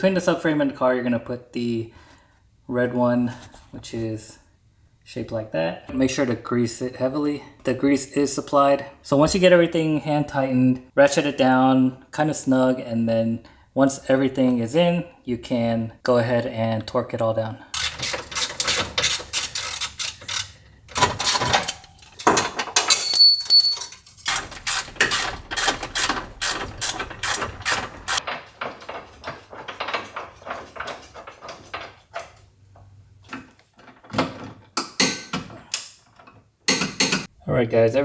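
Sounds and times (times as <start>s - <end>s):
ratchet wrench clicking: 17.8s - 20.6s.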